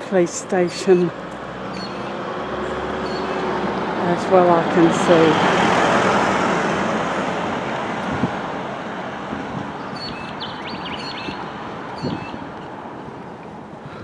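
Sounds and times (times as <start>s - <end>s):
car passing close by: 1.2s - 12.5s
bird chirping: 1.7s - 2.2s, 3.0s - 3.5s, 9.8s - 12.7s.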